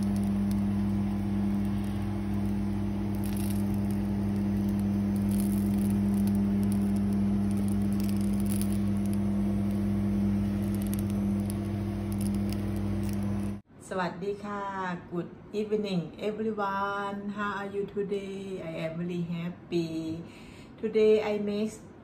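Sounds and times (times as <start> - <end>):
vegetables sizzling in grill pan: 0.0 - 13.5
steady low hum: 0.0 - 13.7.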